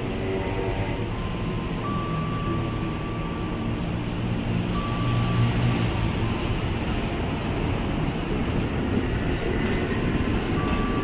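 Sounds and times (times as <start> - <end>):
train wheels and motors rumbling: 0.0 - 11.0.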